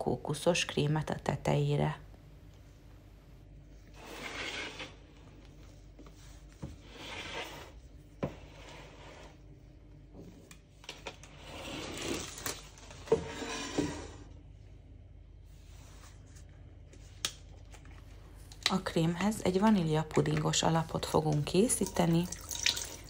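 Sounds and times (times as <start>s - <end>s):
spatula scraping batter in tin: 3.9s - 5.1s, 6.8s - 9.4s.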